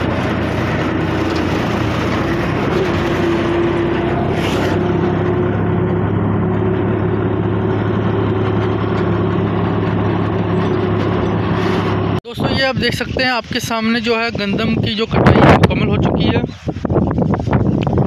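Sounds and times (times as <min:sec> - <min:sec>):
tractor diesel engine running: 0:00.0 - 0:18.0.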